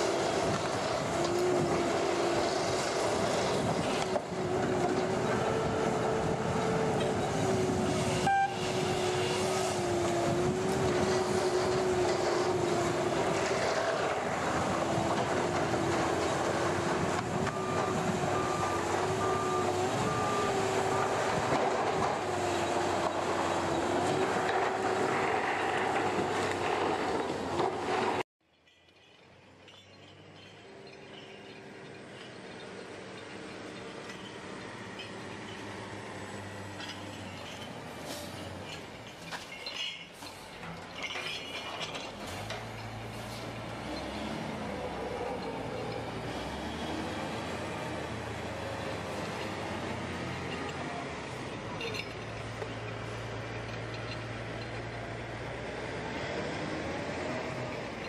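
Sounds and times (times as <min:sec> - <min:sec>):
short beeps: 0:08.3 - 0:08.6.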